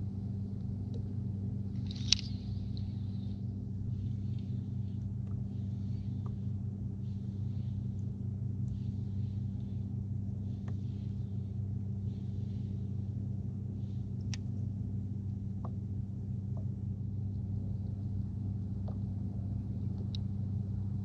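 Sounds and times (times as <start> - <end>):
low mechanical hum: 0.0 - 21.0
faint light clicks: 1.7 - 3.1, 14.2 - 14.7, 19.9 - 20.3.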